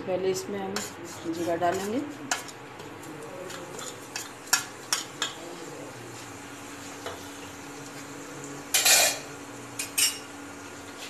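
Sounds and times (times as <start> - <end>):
metal spoon clinking on plate: 8.7 - 9.2, 9.8 - 10.3.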